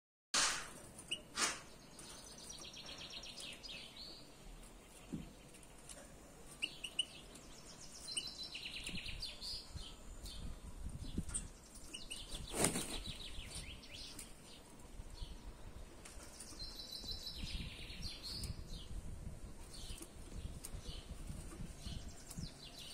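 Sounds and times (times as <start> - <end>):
brief rush of noise: 0.4 - 0.8, 1.4 - 1.7
songbirds trilling: 1.0 - 22.9.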